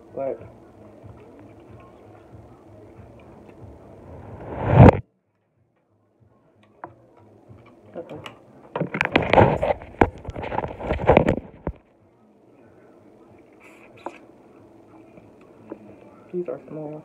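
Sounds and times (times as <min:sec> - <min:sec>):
loud swelling noise: 0:03.8 - 0:05.0.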